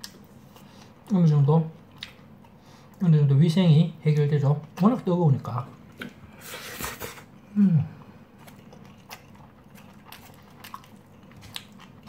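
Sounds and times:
person chewing: 1.8 - 3.0, 5.7 - 12.0.

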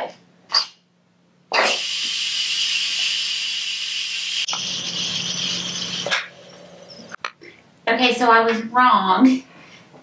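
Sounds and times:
steam hissing from valve: 1.6 - 6.1.

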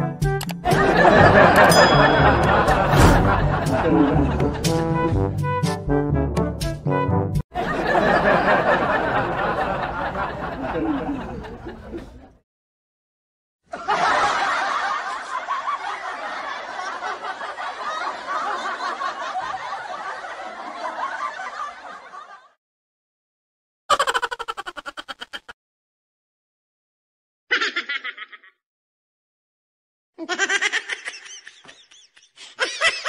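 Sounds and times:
laughter: 0.7 - 4.8, 7.5 - 12.4, 13.7 - 22.6, 23.9 - 25.6, 27.5 - 28.6, 30.2 - 33.0.

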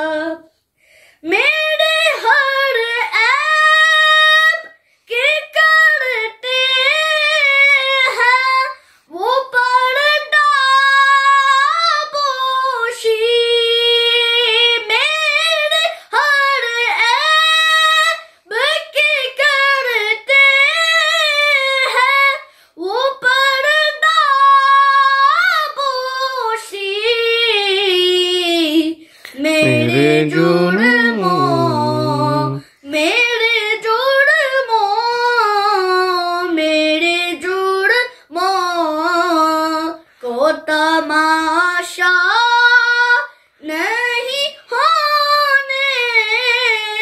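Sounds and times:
boy singing unaccompanied: 1.4 - 47.0
deep voice singing: 29.4 - 32.6.

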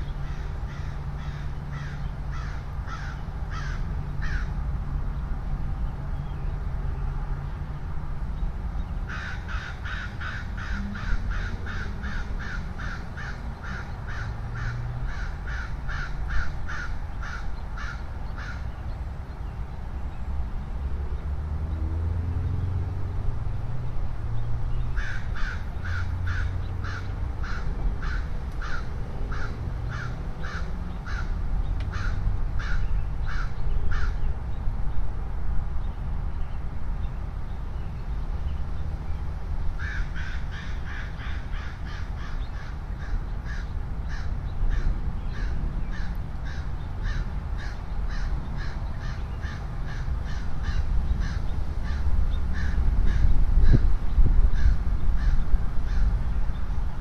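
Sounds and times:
constant low rumble: 0.0 - 57.0
bird cawing harshly: 0.2 - 4.5, 9.1 - 18.7, 25.0 - 34.2, 39.8 - 53.8.

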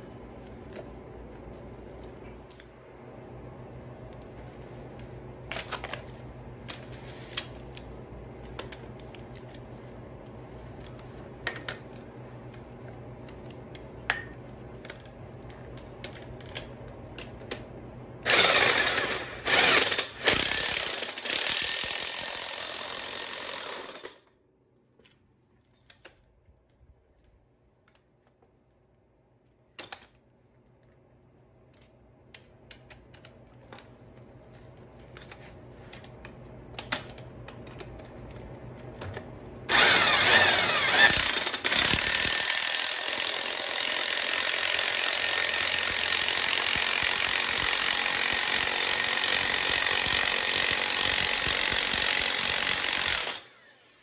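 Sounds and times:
impact wrench hammering: 39.7 - 53.4.

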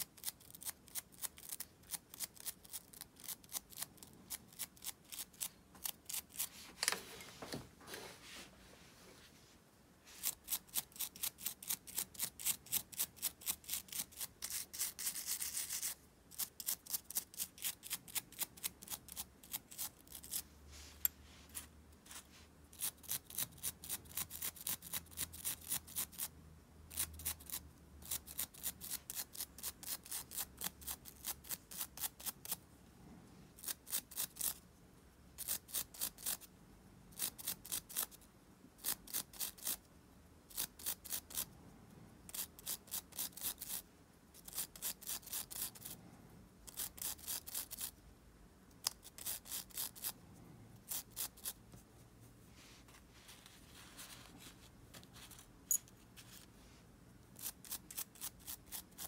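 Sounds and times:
fast scrubbing on small parts: 10.1 - 20.5, 38.8 - 39.8, 42.3 - 43.8, 46.7 - 48.0, 48.8 - 50.2.

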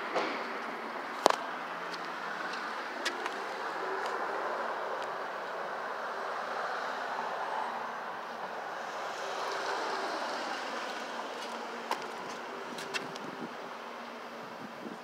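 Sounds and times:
cars going by: 0.0 - 14.8
city street traffic: 0.0 - 15.0.

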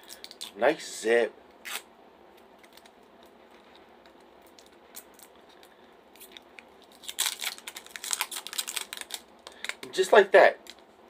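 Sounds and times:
plastic zip bag crinkling: 6.2 - 9.9.

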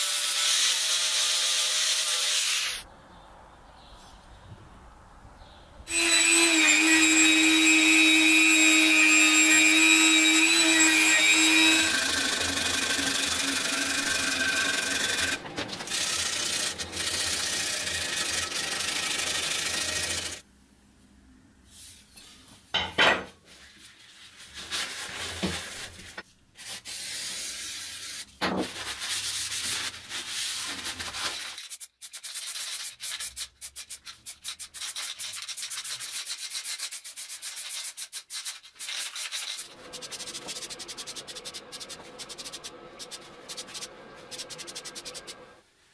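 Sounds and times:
electric grinding tool whining: 5.9 - 20.4
knocks and handling sounds: 15.4 - 15.9, 28.3 - 29.0
spray-paint can rattling: 31.4 - 45.4.

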